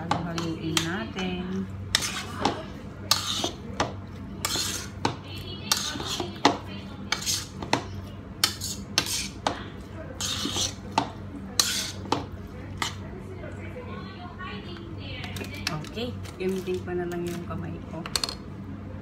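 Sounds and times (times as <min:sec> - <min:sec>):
meat mixture mixed by hand: 0:00.0 - 0:13.0.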